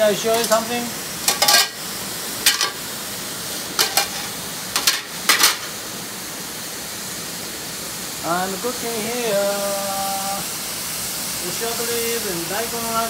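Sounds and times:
meat sizzling in a wok: 0.0s - 13.0s
metal ladle scraping wok: 1.3s - 1.8s, 3.8s - 5.7s.

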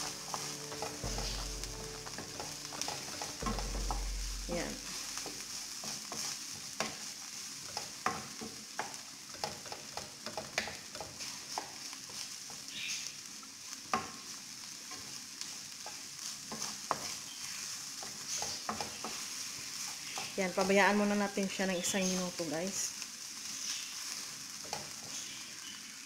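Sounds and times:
meat and onion sizzling in a pan: 0.0s - 26.0s
spatula knocking against a pan: 0.3s - 6.2s.

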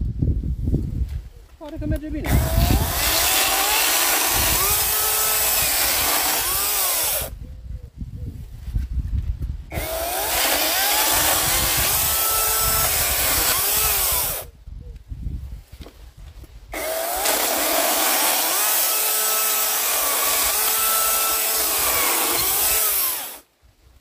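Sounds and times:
chainsaw cutting log: 2.2s - 7.3s, 9.7s - 14.4s, 16.7s - 23.5s.

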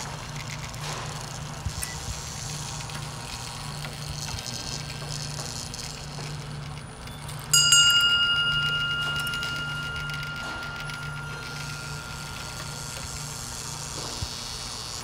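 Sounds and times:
low pulsing hum: 0.0s - 15.0s
small bell ringing: 7.0s - 14.7s.

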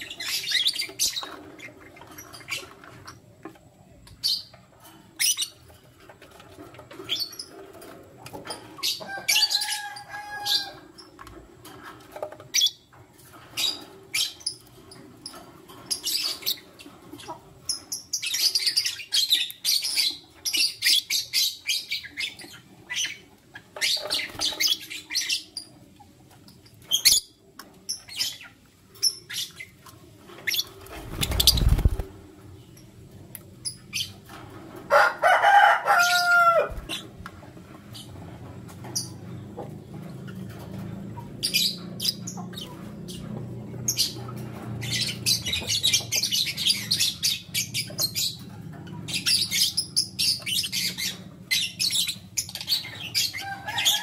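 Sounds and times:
birds chirping: 0.0s - 34.5s, 35.6s - 54.0s
wing flapping: 30.7s - 32.3s.

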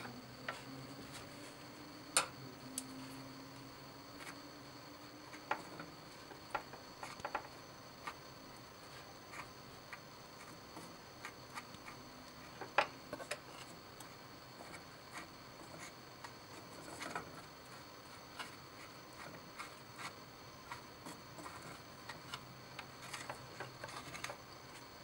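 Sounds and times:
rod clicking and scraping in crucible: 9.3s - 25.0s.

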